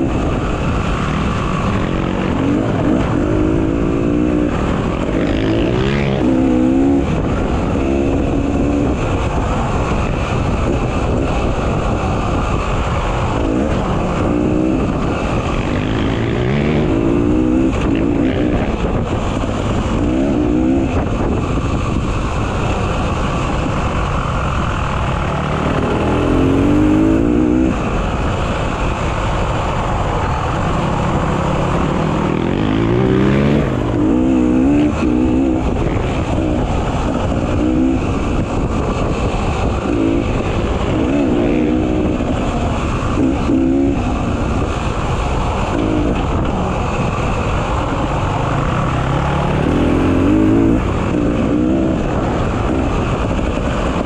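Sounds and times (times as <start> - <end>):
dirt bike engine revving: 0.0 - 28.8, 30.1 - 54.0.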